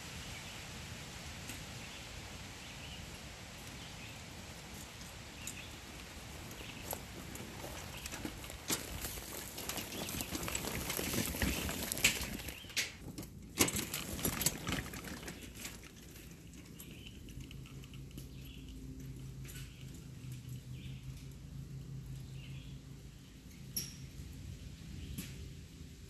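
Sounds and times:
cart wheels crunching on wood chips: 3.6 - 17.4.

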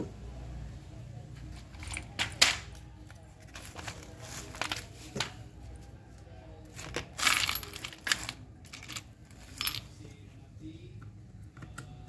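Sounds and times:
clicks and clinks of parts handled: 1.5 - 5.4, 6.8 - 10.0.

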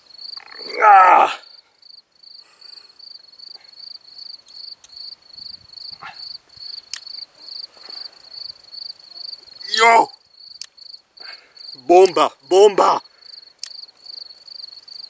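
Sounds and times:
cricket chirping: 0.0 - 15.0
sharp clicks: 6.9 - 7.2, 10.6 - 10.8, 13.6 - 13.8.

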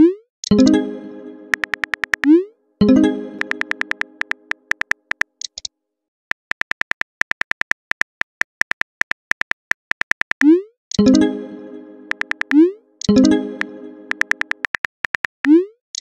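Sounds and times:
message chime: 0.5 - 4.6, 11.0 - 14.6
keyboard typing clicks: 1.5 - 5.6, 6.3 - 11.3, 12.0 - 16.0.

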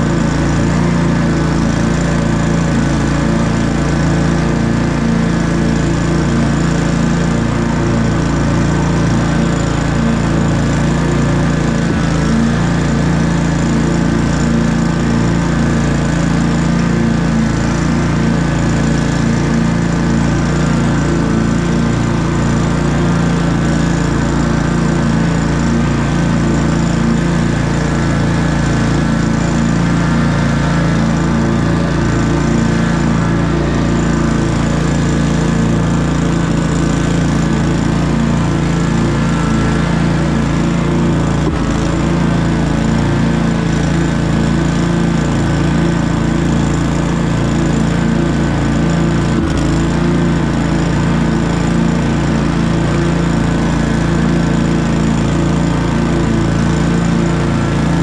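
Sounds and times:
lawn mower engine running: 0.0 - 58.0.

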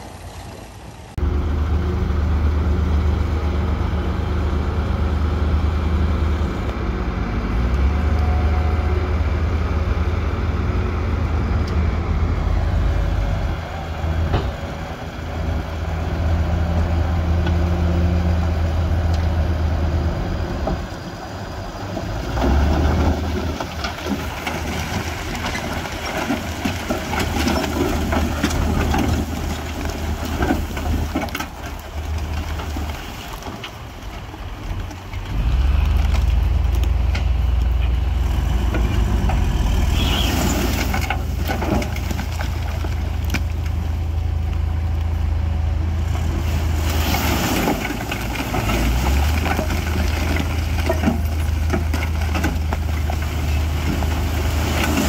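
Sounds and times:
diesel machinery engine drone: 0.0 - 55.0
rock and soil crunching: 11.7 - 55.0.

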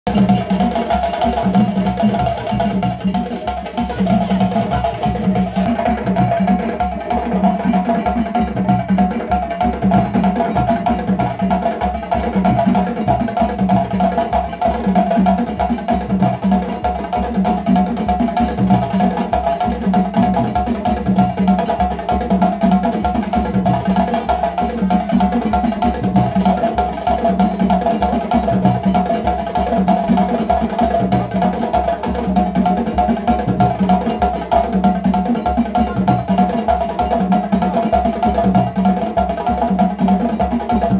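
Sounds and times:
djembe drums playing: 0.0 - 40.9.

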